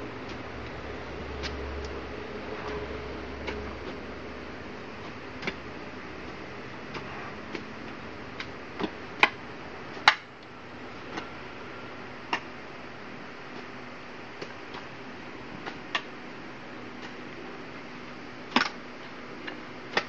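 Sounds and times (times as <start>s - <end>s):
hoes chopping into compost: 4.9s - 10.3s, 18.5s - 18.8s.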